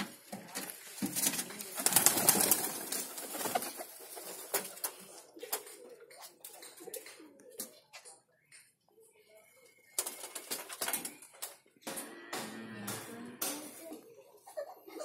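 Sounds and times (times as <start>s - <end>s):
pigeons cooing: 0.0s - 8.2s.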